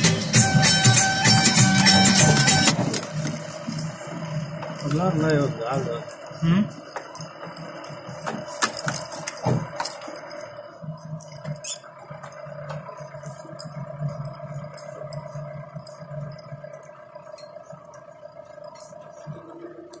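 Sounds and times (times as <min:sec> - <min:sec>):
vehicle engine humming: 0:00.0 - 0:20.0
rattles and knocks: 0:00.4 - 0:05.5, 0:06.8 - 0:16.7.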